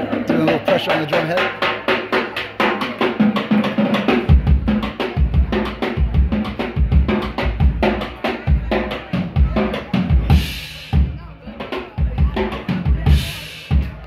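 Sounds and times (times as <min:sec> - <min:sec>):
bass drum kicks: 0:04.2 - 0:11.3.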